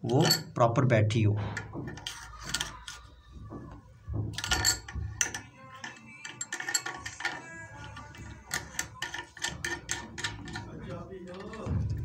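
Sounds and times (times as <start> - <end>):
metallic tap clicking and scraping: 1.5 - 3.1, 4.3 - 11.7.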